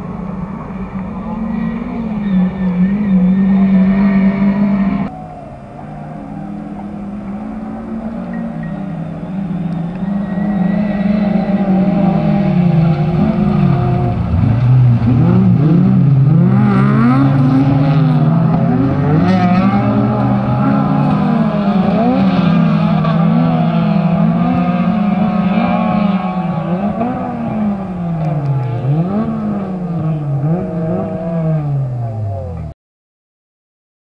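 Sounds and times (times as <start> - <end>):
race car engines revving: 0.0 - 32.7.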